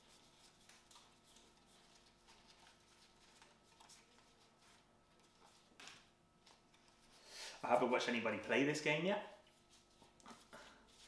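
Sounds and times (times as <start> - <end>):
cards being fanned through: 0.0 - 7.1.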